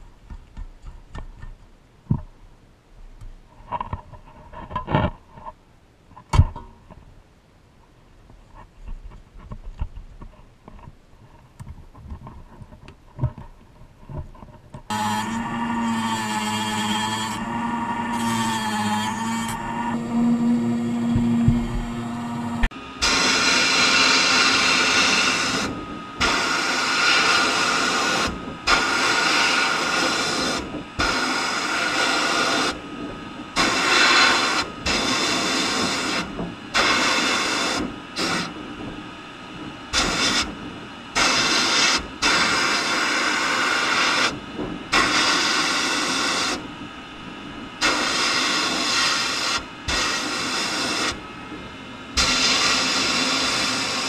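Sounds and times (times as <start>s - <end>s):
sandblast gun hissing bursts: 23.0s - 32.8s, 33.6s - 38.6s, 39.9s - 40.5s, 41.2s - 46.6s, 47.8s - 51.2s, 52.2s - 54.0s.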